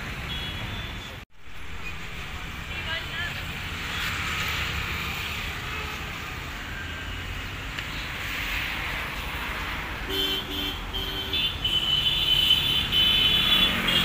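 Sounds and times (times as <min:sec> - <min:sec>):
road traffic noise: 0:00.0 - 0:14.0
vehicle horns honking: 0:00.2 - 0:01.2, 0:10.1 - 0:14.0.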